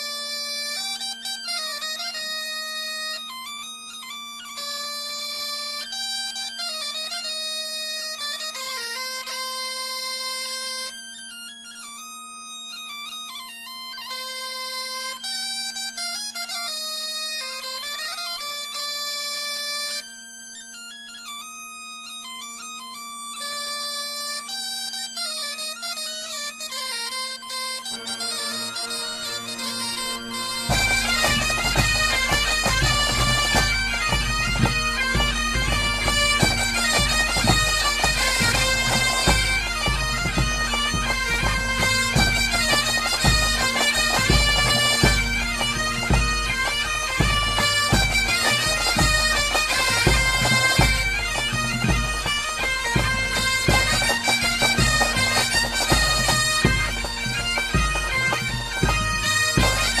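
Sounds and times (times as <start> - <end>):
bagpipe tune with drone: 0.0 - 60.0
low pulsing beat: 30.3 - 60.0.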